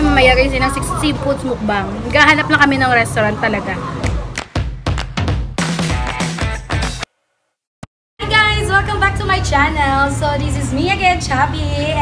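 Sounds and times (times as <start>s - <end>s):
music with drum beat and guitar: 4.5s - 7.1s.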